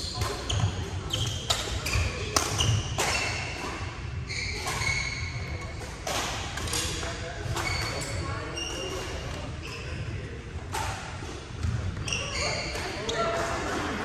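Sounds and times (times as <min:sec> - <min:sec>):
badminton rackets hitting shuttlecocks: 0:00.2 - 0:03.8
shoes squeaking on wooden floor: 0:12.0 - 0:13.4.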